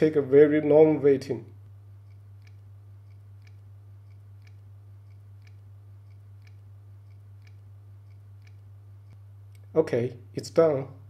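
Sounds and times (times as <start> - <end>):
low electrical hum: 0.0 - 11.0
faint even ticking: 2.0 - 9.7.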